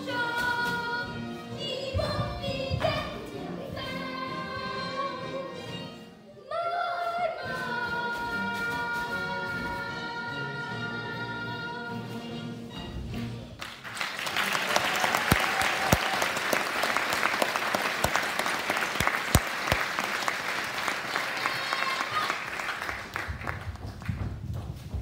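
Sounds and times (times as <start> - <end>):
music: 0.0 - 14.5, 21.4 - 25.0
audience applauding: 13.6 - 24.2.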